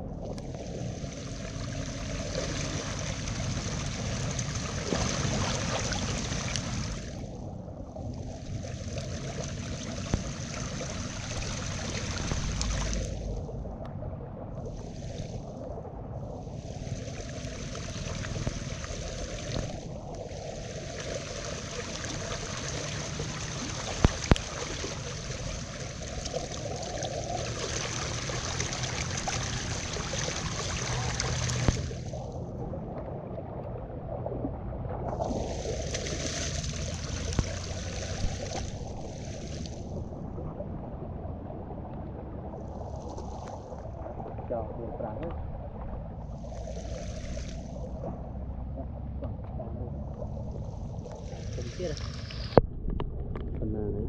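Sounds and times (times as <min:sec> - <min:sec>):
floodwater running fast: 0:00.0 - 0:07.4, 0:08.4 - 0:13.7, 0:16.5 - 0:32.4, 0:35.1 - 0:40.0, 0:50.3 - 0:52.6
splashing of wading: 0:00.0 - 0:07.4, 0:08.5 - 0:13.7, 0:16.6 - 0:52.6.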